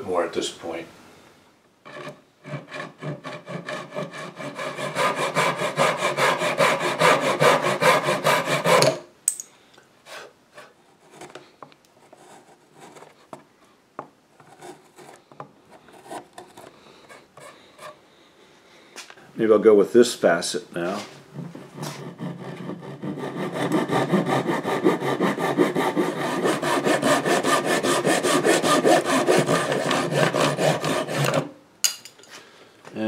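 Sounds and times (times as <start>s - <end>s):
hand rasp on wood: 1.9s - 8.9s, 21.6s - 31.5s.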